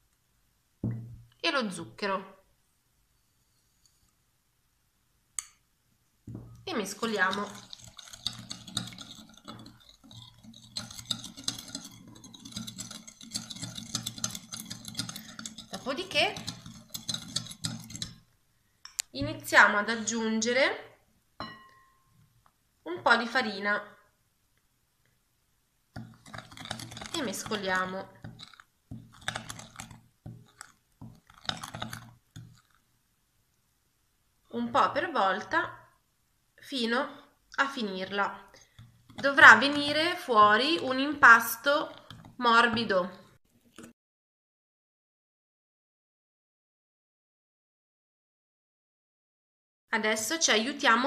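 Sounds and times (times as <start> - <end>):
metal spoon scraping glass bowl: 6.5 - 18.3, 26.0 - 32.8, 38.8 - 42.9
spoon clinking against glass bowl: 21.4 - 22.1.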